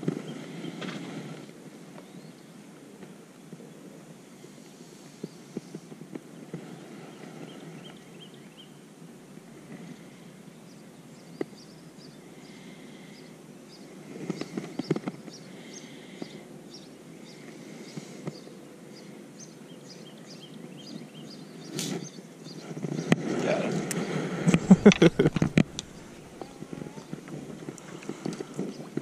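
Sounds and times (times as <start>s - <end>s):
outdoor background hiss: 0.0s - 29.0s
songbirds chirping: 1.9s - 8.9s, 9.8s - 29.0s
knocks and clatter: 24.5s - 27.6s.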